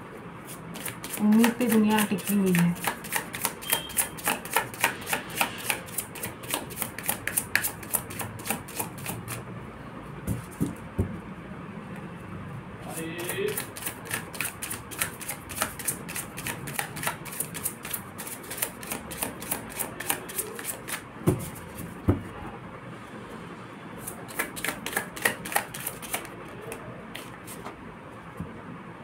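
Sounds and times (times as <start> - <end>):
cards shuffled by hand: 0.5 - 9.3, 13.5 - 21.9, 24.0 - 27.7.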